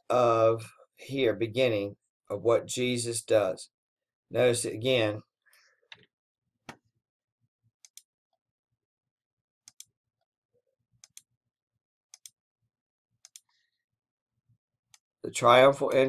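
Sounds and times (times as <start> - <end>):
computer mouse clicking: 9.7 - 9.9, 12.1 - 12.4, 13.2 - 13.5.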